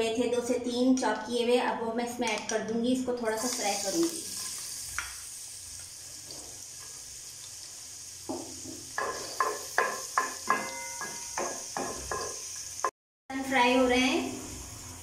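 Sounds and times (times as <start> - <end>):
garlic sizzling in oil: 3.2 - 15.0
spatula scraping a pan: 8.6 - 12.6.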